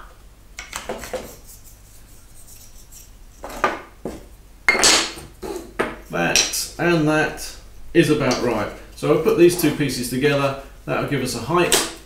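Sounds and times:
wooden pieces knocking on workbench: 0:03.4 - 0:06.6.

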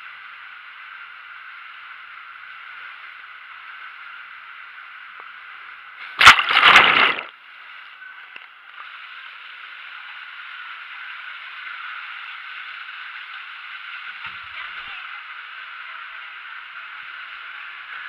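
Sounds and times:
water rushing through slide tube: 0:06.0 - 0:07.3
loud splash into pool: 0:06.1 - 0:07.3.

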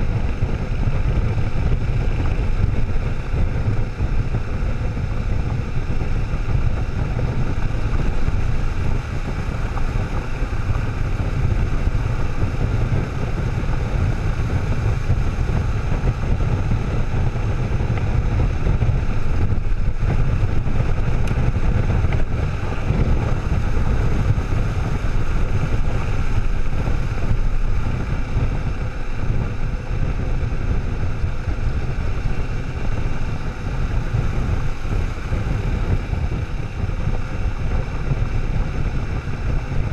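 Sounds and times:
wind rush on microphone: 0:00.0 - 0:39.9.

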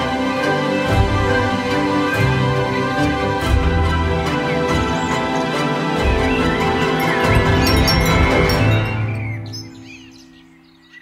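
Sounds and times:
background music: 0:00.0 - 0:11.0
faint bird chirps: 0:07.3 - 0:11.0.

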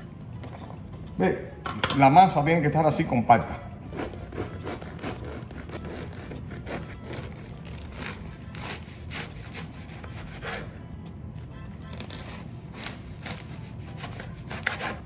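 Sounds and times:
knife sawing through bread: 0:03.9 - 0:10.9, 0:11.9 - 0:15.0.

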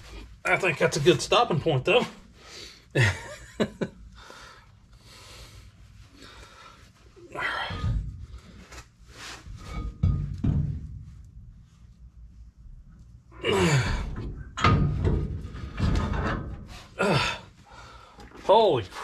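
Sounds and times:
man straining and groaning: 0:07.2 - 0:08.1, 0:13.4 - 0:14.2, 0:17.0 - 0:17.6
metal drum thunking against hub: 0:09.5 - 0:11.3, 0:14.0 - 0:16.9.

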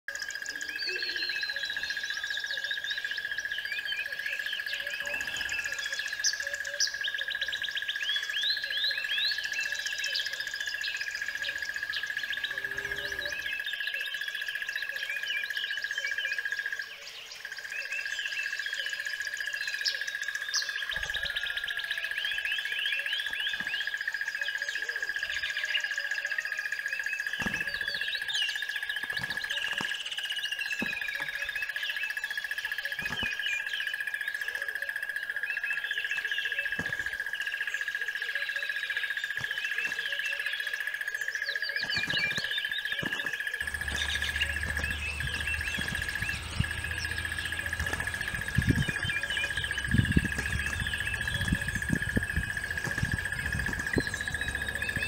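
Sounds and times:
songbirds chirping: 0:00.1 - 0:55.0
high-pitched whine: 0:43.0 - 0:55.0.

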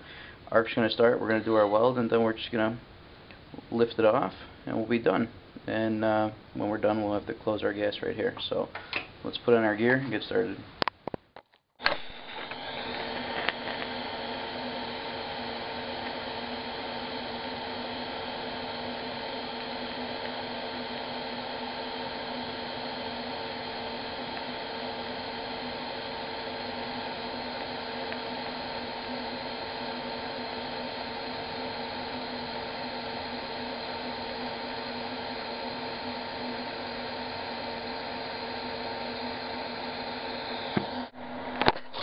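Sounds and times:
clicks: 0:10.8 - 0:14.2
welding arc buzzing hiss: 0:11.8 - 0:42.0.

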